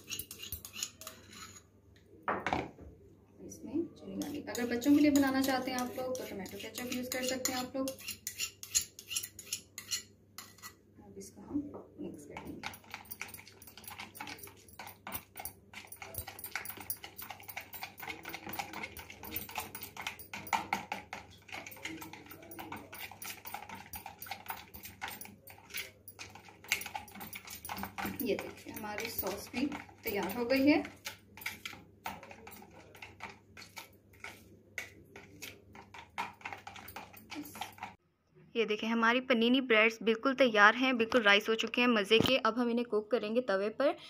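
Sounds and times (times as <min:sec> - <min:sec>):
spoon scraping plastic bowl: 0:00.0 - 0:01.7, 0:04.2 - 0:10.8, 0:12.4 - 0:38.0.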